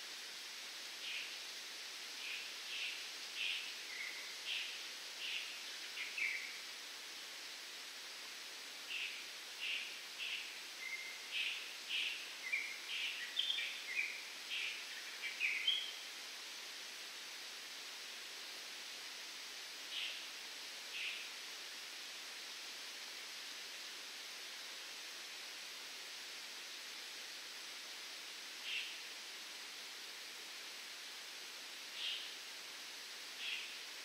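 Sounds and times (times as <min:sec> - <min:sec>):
wind through palm fronds: 0:00.0 - 0:34.0.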